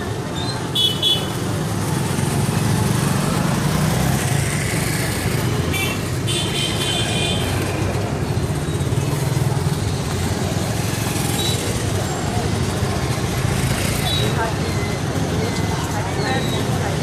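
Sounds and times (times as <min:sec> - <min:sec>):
crowd chatter: 0:00.0 - 0:17.0
motorcycle engines passing: 0:00.0 - 0:17.0.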